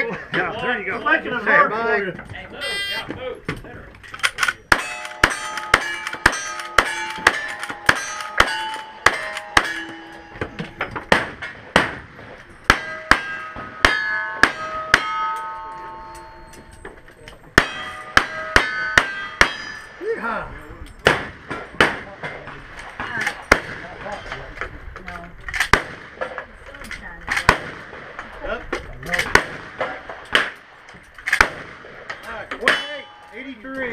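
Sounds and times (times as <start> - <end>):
steel target clanging: 4.5 - 24.3, 31.3 - 33.9.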